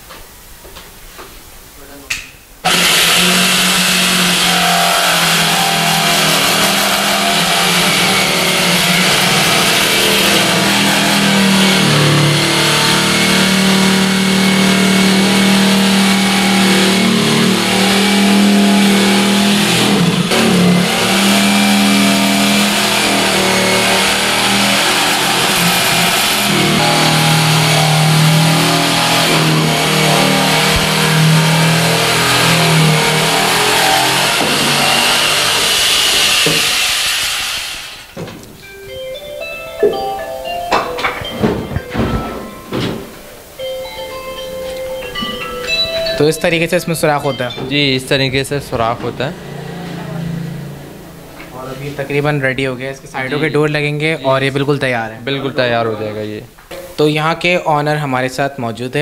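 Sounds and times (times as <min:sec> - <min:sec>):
jigsaw cutting wood: 0:02.6 - 0:38.2.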